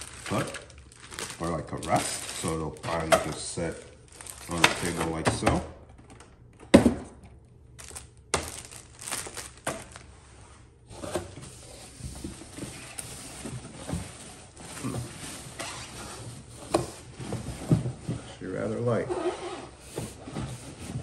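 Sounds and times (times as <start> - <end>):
cardboard and plastic rustling: 0.0 - 6.2, 7.8 - 21.0.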